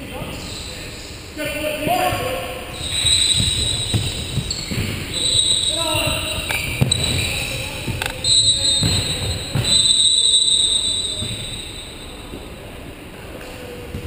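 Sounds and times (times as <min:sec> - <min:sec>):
shoes squealing on hardwood court: 0:01.8 - 0:12.6
ball being kicked: 0:03.4 - 0:05.1.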